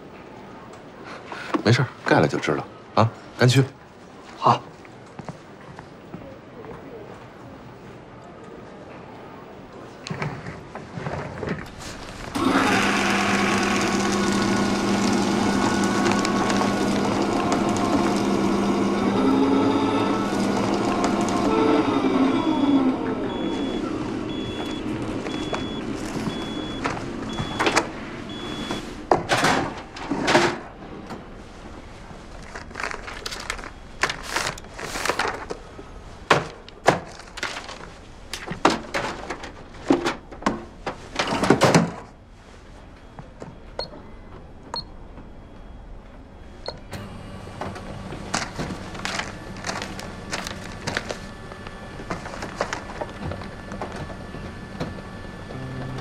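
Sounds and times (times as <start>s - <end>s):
paper rustling and flapping: 10.8s - 12.5s, 13.3s - 19.0s, 24.8s - 27.2s, 31.8s - 41.2s, 47.7s - 54.2s.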